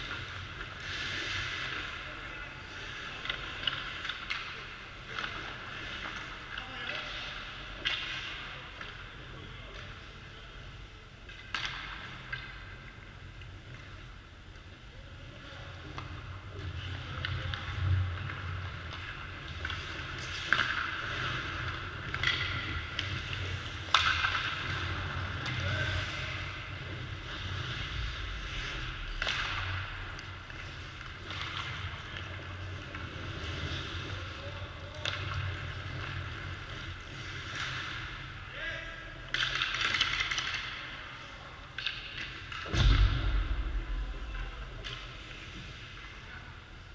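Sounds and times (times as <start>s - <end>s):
hockey sticks and pucks knocking: 3.0s - 10.0s, 11.2s - 14.7s, 15.7s - 38.4s, 39.2s - 41.0s, 41.6s - 43.1s
skate blades scraping on ice: 16.7s - 38.4s
low steady hum: 42.7s - 46.9s.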